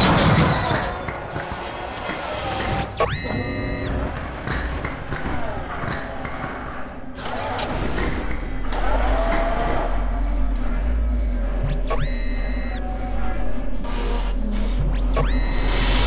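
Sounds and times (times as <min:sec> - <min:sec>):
machinery clanks and clicks: 0:00.0 - 0:16.0
low mechanical hum: 0:00.6 - 0:16.0
creaking tones: 0:07.2 - 0:16.0.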